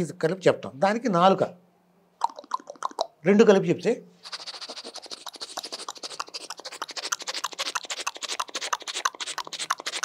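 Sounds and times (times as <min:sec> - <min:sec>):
vocal mimicry of clicking chuffs: 0:02.2 - 0:03.3, 0:04.2 - 0:10.0.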